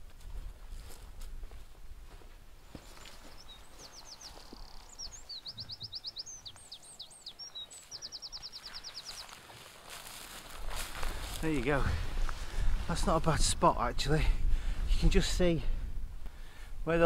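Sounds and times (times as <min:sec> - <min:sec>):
songbird singing high notes: 0:03.3 - 0:09.3.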